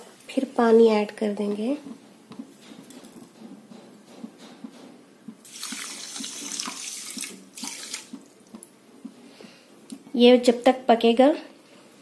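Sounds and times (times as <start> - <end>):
water splashing into pan: 5.4 - 8.2.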